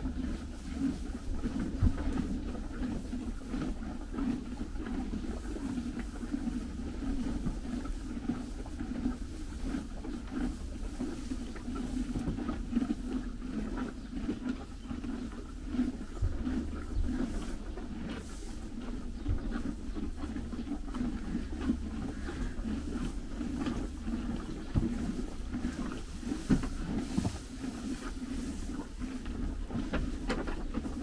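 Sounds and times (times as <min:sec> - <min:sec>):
horses chewing hay: 0:00.0 - 0:31.0
hay rustling: 0:25.1 - 0:30.1.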